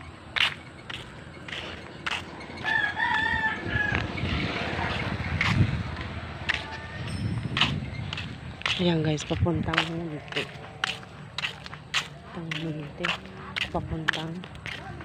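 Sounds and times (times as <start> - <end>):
footsteps and knocks: 0.4 - 3.3, 4.8 - 15.0
rooster crowing: 2.6 - 4.5.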